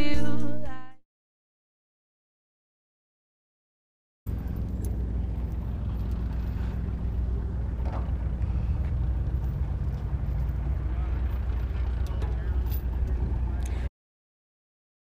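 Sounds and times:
low engine rumble: 4.3 - 13.9.

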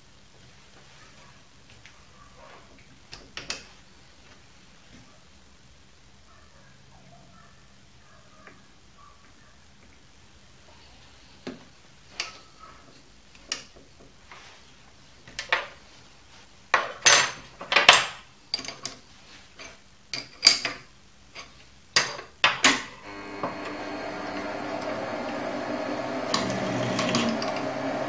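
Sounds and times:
lathe motor humming: 23.0 - 28.0.

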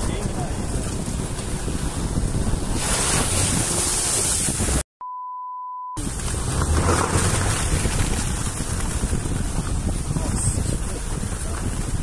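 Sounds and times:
wind rushing on microphone: 0.0 - 4.8, 6.0 - 12.0
censor beep tone: 5.0 - 6.0.

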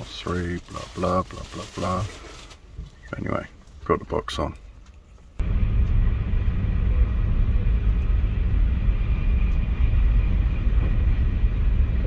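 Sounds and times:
train rumble inside carriage: 5.4 - 12.0.

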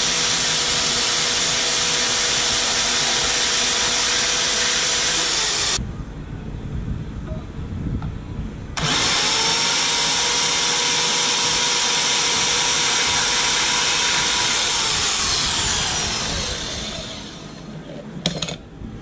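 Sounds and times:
band saw cutting metal: 0.0 - 5.8, 8.8 - 17.7.

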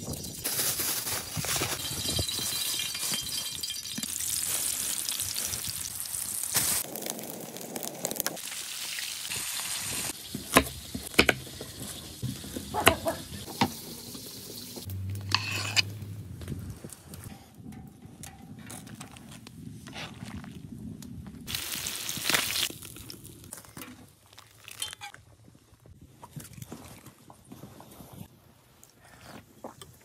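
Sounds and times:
fish sizzling in a pan: 2.6 - 14.9
knife on wooden cutting board: 15.3 - 15.9.

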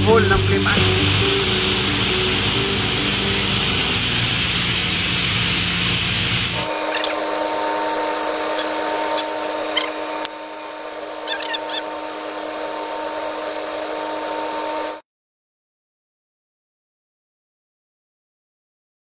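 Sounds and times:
machinery noise: 0.0 - 15.0
steady hum and hiss: 0.0 - 15.0.

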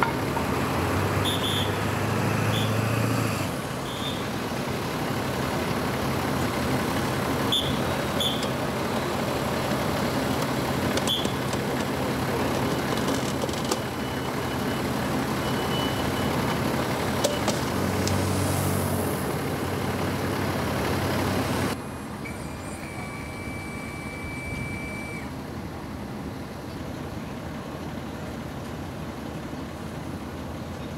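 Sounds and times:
vehicle engine idling: 0.0 - 30.9
short high chirps: 22.3 - 25.3.

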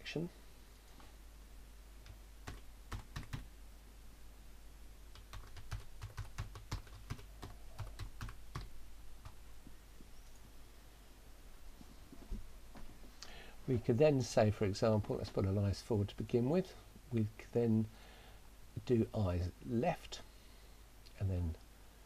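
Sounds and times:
typing on computer keyboard: 2.4 - 3.4, 5.1 - 9.4.

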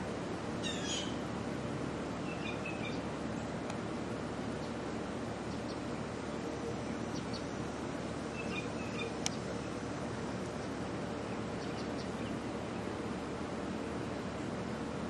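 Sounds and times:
outdoor background hiss: 0.0 - 15.0
faint high bird chirps: 0.6 - 1.2, 2.2 - 3.0, 8.3 - 9.4.

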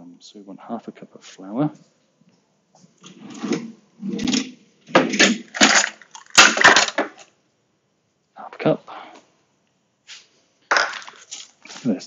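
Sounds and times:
items rattling in cupboard: 3.0 - 7.3.

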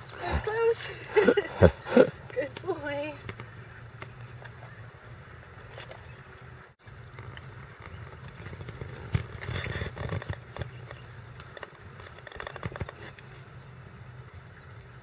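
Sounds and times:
horse hooves on grass: 0.0 - 15.0.

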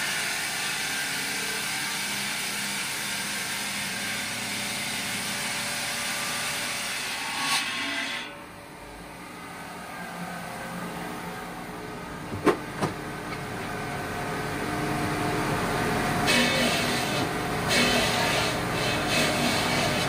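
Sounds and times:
circular stone saw cutting stone: 0.0 - 8.5, 16.0 - 20.0.

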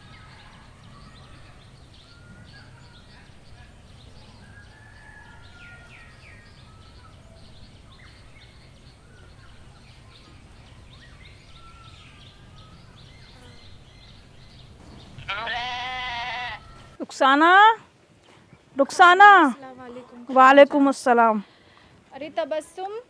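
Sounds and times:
faint bird chirps: 0.0 - 15.3
animal bleating: 15.2 - 16.8.

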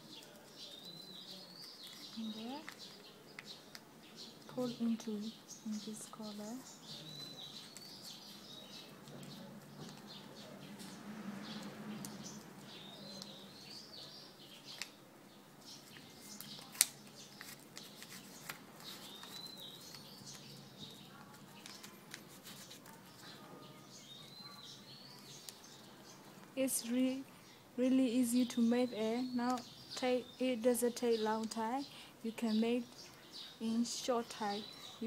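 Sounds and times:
birds chirping: 0.0 - 35.0
paper rustling and creasing: 15.8 - 23.4.

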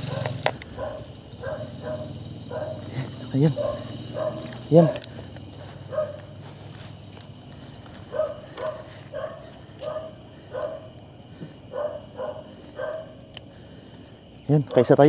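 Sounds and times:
dog barking: 0.0 - 5.2, 5.9 - 6.3, 8.1 - 11.0, 11.6 - 13.2.

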